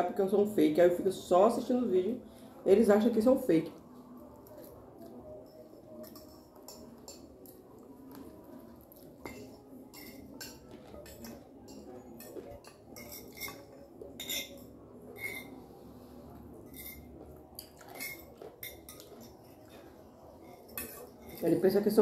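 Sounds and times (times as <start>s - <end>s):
forks scraping on plates: 9.2s - 15.8s, 16.6s - 21.6s.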